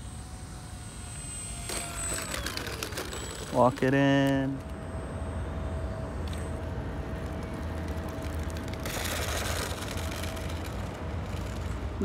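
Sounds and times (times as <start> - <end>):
electric motor and propeller humming: 0.0 - 12.0
wheels rolling on concrete: 1.7 - 4.0, 6.2 - 12.0.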